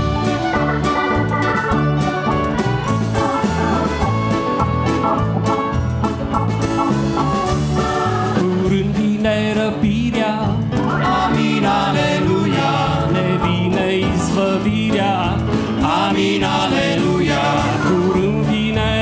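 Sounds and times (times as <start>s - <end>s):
trumpet: 0.0s - 8.5s
acoustic guitar: 0.0s - 19.0s
bass guitar: 0.0s - 19.0s
drum kit: 0.0s - 19.0s
keyboard: 0.0s - 19.0s
tuba-type brass horn: 2.5s - 5.7s.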